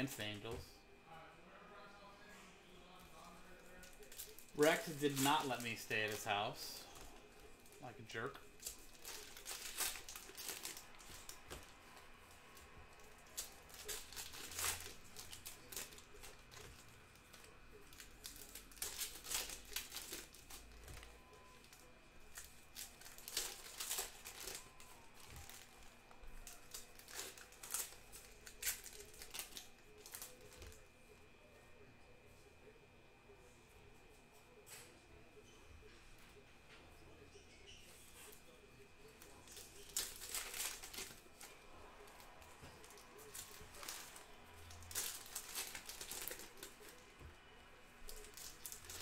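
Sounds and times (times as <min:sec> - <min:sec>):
foil wrappers crinkling and tearing: 0:03.2 - 0:30.9, 0:39.1 - 0:47.3, 0:47.9 - 0:49.0.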